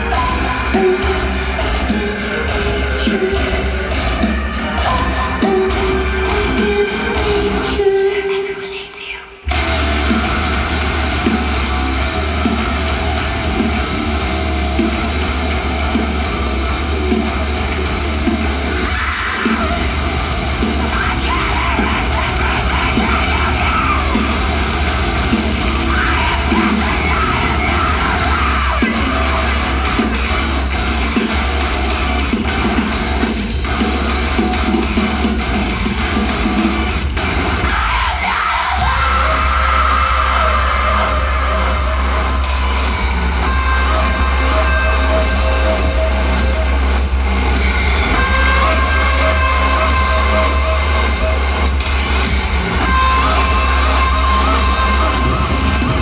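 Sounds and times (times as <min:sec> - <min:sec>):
bass guitar: 0:00.0 - 0:07.9, 0:09.5 - 0:56.0
distorted electric guitars: 0:00.0 - 0:08.8, 0:09.4 - 0:56.0
woman singing lead vocals: 0:00.0 - 0:09.6, 0:18.8 - 0:30.4, 0:48.0 - 0:51.6, 0:52.7 - 0:56.0
drums: 0:00.0 - 0:56.0.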